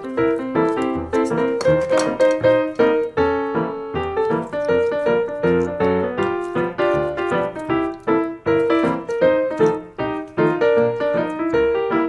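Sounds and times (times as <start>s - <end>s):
light piano melody: 0.0s - 12.0s.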